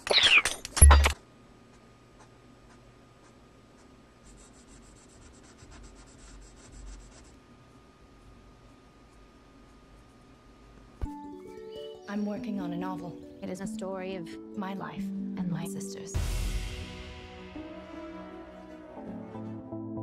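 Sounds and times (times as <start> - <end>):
colored pencil scratching on paper: 2.2 - 7.4.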